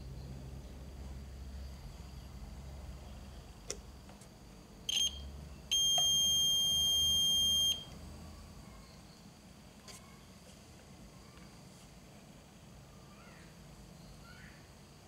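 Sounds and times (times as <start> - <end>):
multimeter continuity beep: 4.9 - 8.0.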